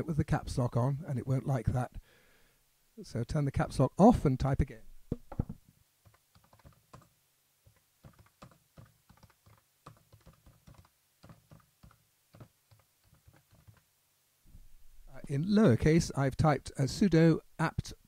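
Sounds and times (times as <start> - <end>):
typing on computer keyboard: 6.0 - 13.9.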